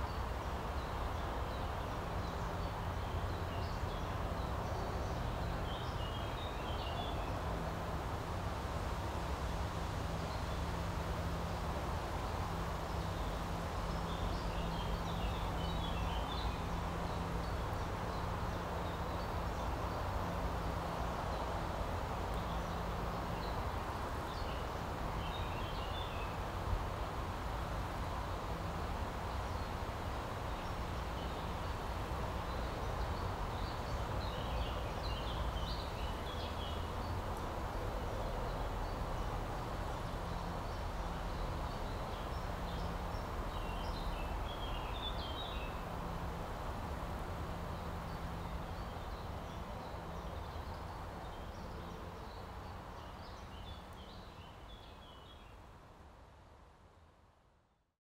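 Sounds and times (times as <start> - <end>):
small birds chirping: 12.8 - 55.7.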